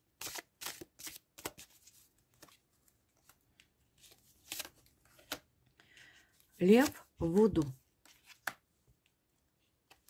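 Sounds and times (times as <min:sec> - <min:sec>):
cards being shuffled: 0:00.2 - 0:05.5, 0:06.6 - 0:08.7.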